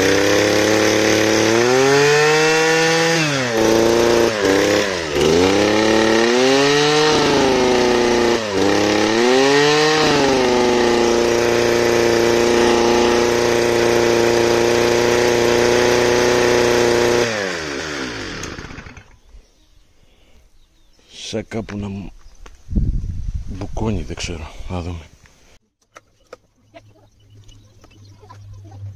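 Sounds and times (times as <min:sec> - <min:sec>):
brush cutter engine revving: 0:00.0 - 0:19.3.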